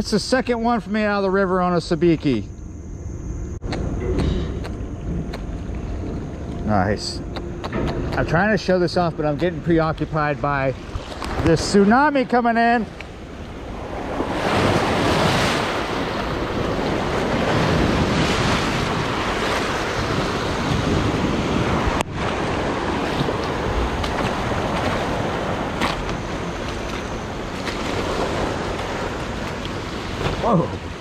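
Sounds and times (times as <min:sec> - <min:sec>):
waves washing up a riverbank: 0:08.2 - 0:31.0.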